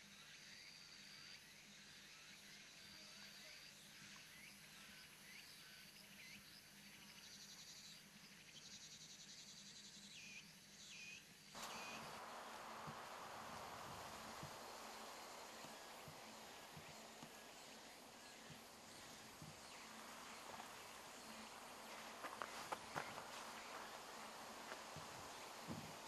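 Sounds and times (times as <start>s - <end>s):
insects trilling: 11.6s - 26.0s
steady rushing noise: 11.6s - 26.0s
swooping chirps: 11.6s - 26.0s.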